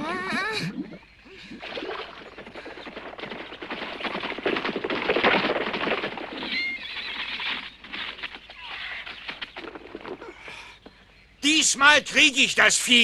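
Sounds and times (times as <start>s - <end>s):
horses' hooves clattering: 1.6s - 11.1s.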